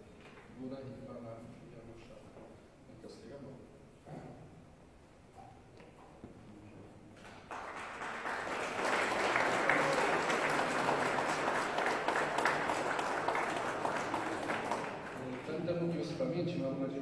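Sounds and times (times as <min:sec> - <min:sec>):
audience applauding: 0:07.2 - 0:16.0.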